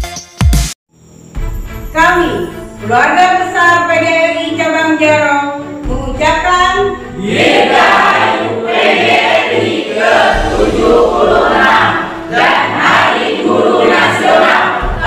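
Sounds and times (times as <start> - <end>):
mixed choir singing: 7.1 - 15.0
low regular beat: 8.7 - 15.0.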